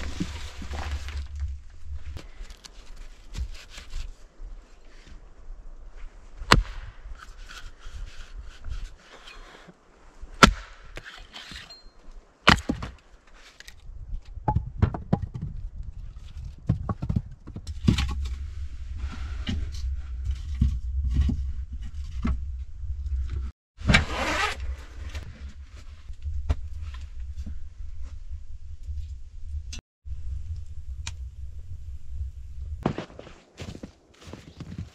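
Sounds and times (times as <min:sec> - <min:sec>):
wooden knocks and clatter: 0:14.4 - 0:18.2
steady low rumble: 0:24.7 - 0:32.8.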